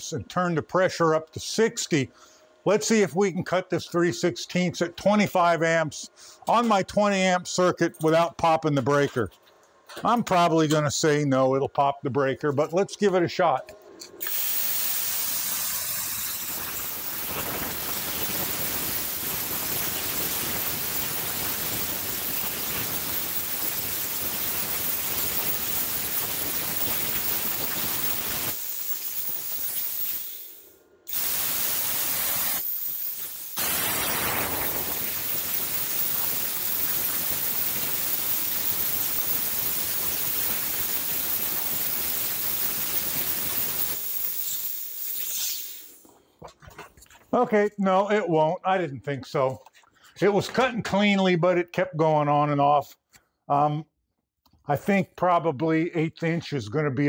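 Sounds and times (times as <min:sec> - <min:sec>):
plasma cutter hissing: 0:14.2 - 0:46.0.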